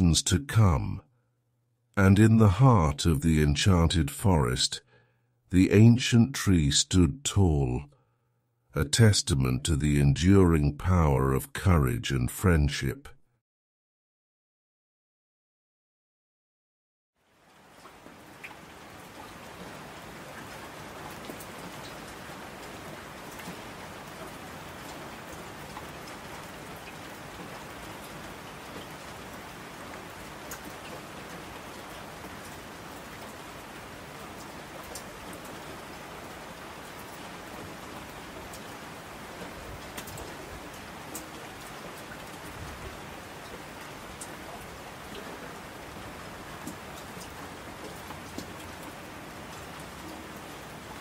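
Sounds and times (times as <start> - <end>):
steady rain falling: 17.2 - 51.0.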